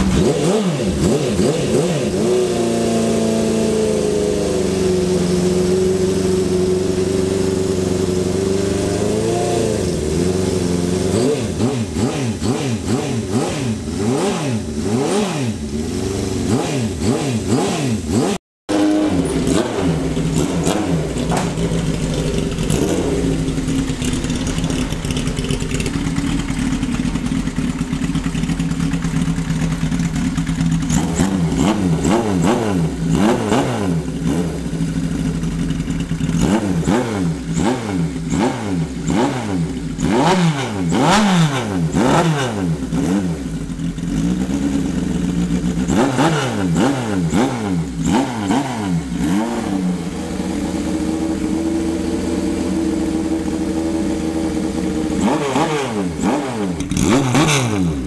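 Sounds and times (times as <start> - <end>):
motorcycle engine idling and revving: 0.0 - 58.0.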